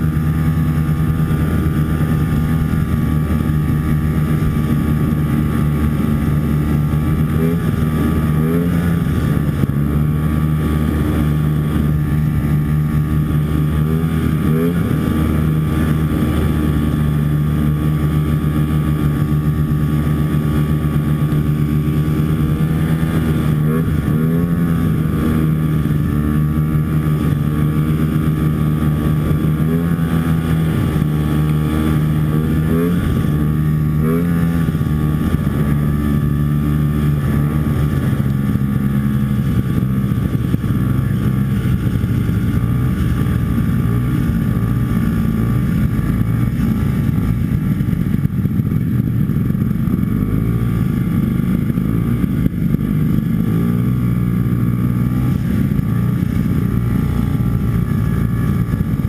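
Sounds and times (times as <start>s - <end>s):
two-stroke snowmobile engine running: 0.0s - 59.0s.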